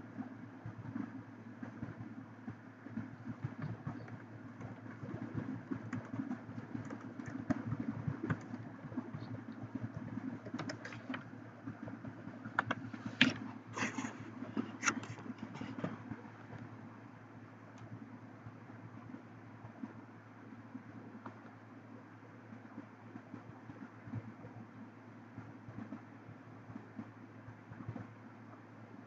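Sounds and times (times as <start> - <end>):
steady low hum: 0.0 - 29.0
keyboard and mouse clicks: 3.0 - 16.7.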